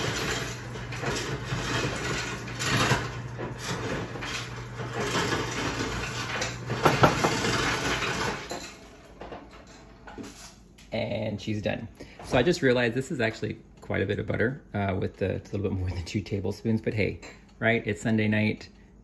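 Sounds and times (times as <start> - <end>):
ice cubes clattering: 0.0 - 8.8
ice dispenser motor hum: 0.0 - 10.4.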